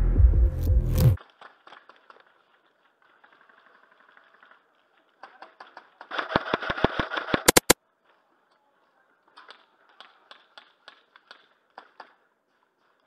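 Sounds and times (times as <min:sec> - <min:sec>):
airsoft gunfire: 0:06.1 - 0:07.8.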